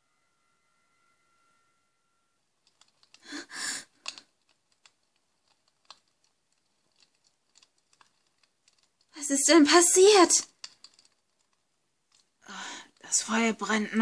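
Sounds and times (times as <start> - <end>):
faint held tone: 0.0 - 2.6
campfire crackling: 2.7 - 9.3, 10.2 - 13.1.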